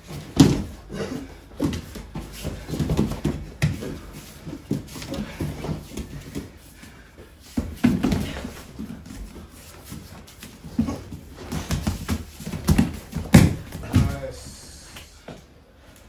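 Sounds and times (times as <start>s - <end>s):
bodies thudding together: 0.0s - 0.8s, 10.7s - 14.4s
bare feet stamping and shuffling: 0.0s - 15.4s
effortful grunts and breaths: 0.7s - 1.8s.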